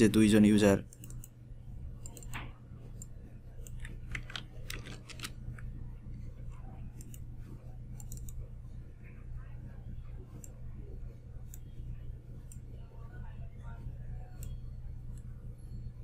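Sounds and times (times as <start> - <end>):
steady low hum: 0.0 - 16.0
computer mouse and keyboard clicks: 0.9 - 1.4, 2.0 - 5.7, 6.9 - 7.3, 7.9 - 8.4.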